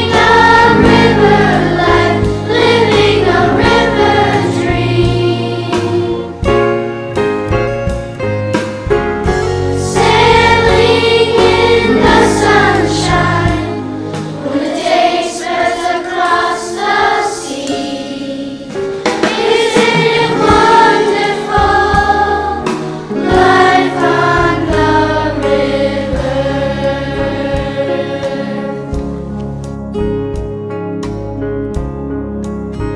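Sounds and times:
children's choir singing: 0.0s - 6.5s, 9.8s - 29.2s
instrumental accompaniment: 0.0s - 32.9s.

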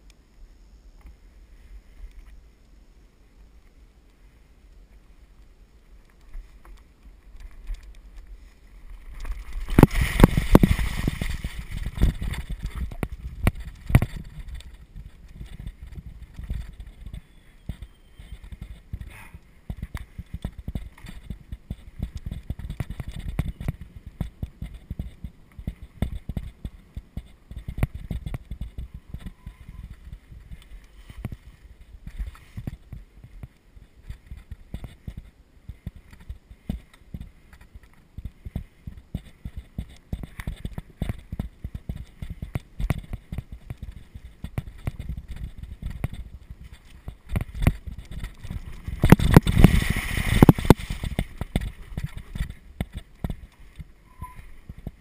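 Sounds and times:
bike knocking and rattling: 6.1s - 55.0s
low rumble: 8.0s - 19.1s, 43.7s - 52.8s
rush of noise: 8.4s - 19.4s, 47.4s - 52.6s.

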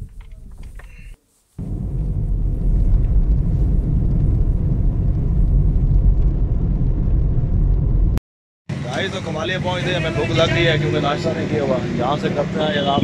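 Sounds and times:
car engine and road noise: 1.6s - 13.0s.

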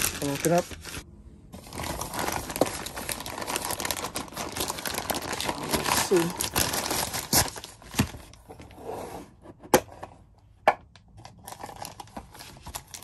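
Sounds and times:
plastic bag rustling: 0.0s - 1.0s, 1.6s - 8.4s.

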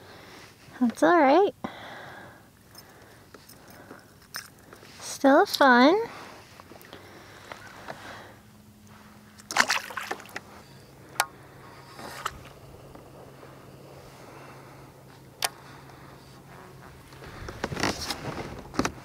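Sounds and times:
faint steady hum: 0.0s - 19.0s
fishing gear clatter and clicks: 2.7s - 4.9s, 17.2s - 19.0s
water lapping against hull: 9.4s - 10.8s.

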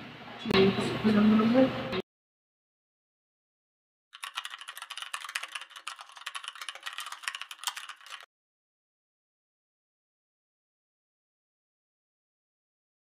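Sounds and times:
keyboard typing clicks: 4.2s - 8.3s.

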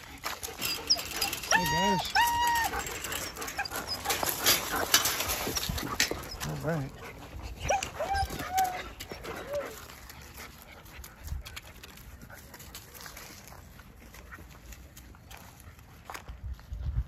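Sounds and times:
scuffling on grass and gravel: 0.0s - 17.0s
puppies whimpering: 0.2s - 10.4s.

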